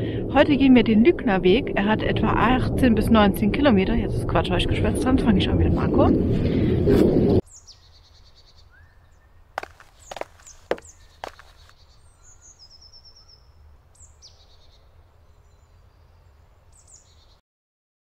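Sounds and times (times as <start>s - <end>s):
songbirds singing: 7.4s - 17.4s.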